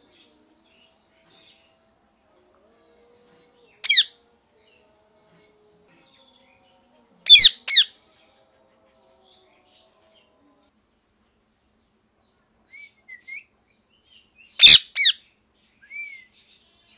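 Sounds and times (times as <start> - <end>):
parakeet screeching calls: 3.8 - 4.1, 7.3 - 7.9, 14.6 - 15.2.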